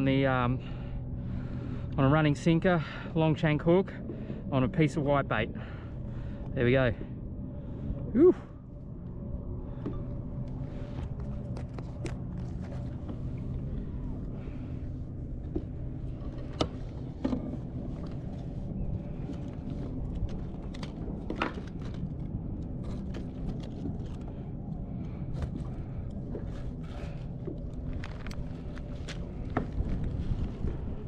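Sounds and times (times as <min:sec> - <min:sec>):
low background rumble: 0:00.0 - 0:31.0.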